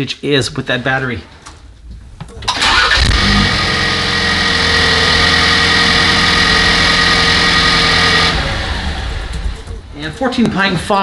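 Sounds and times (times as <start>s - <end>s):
car engine idling: 2.4s - 10.4s
steady high whine: 3.0s - 11.0s.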